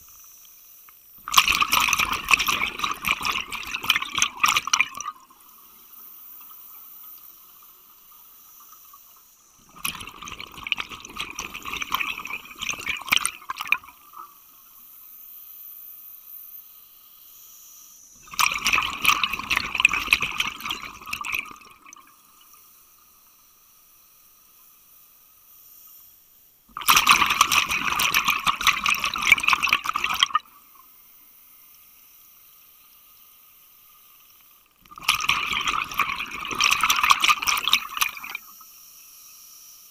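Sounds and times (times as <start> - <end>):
scuba exhalation bubbling: 1.3 - 5.2, 9.6 - 14.2, 18.2 - 22.0, 26.8 - 30.5, 34.9 - 38.4.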